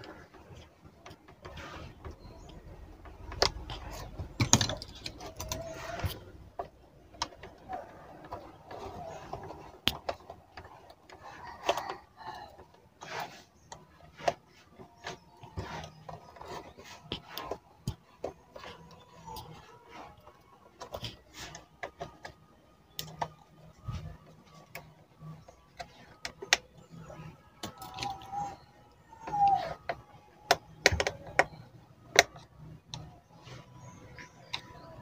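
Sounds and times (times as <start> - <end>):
plastic clicks and knocks: 29.2 - 33.1.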